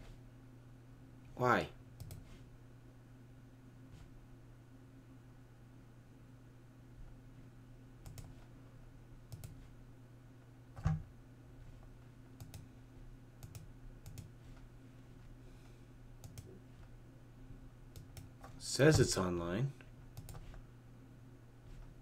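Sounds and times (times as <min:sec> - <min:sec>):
faint low hum: 0:00.0 - 0:22.0
computer clicks: 0:02.0 - 0:02.3, 0:08.0 - 0:08.4, 0:09.3 - 0:09.6, 0:12.4 - 0:12.6, 0:13.4 - 0:14.3, 0:16.2 - 0:16.5, 0:17.9 - 0:18.3, 0:20.1 - 0:20.5.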